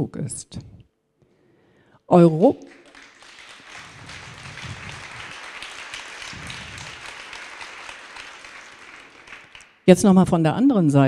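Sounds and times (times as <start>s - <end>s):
audience applauding: 2.7s - 9.9s.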